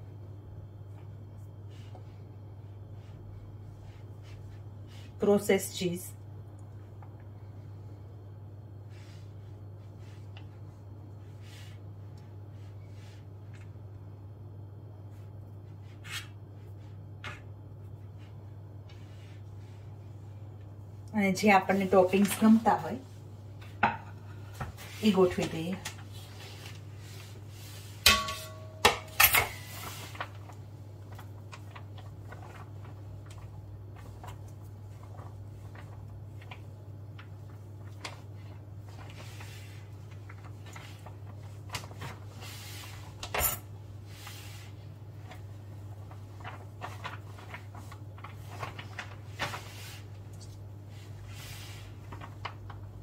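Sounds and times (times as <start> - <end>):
dishes and utensils clinking: 28.1 - 29.6.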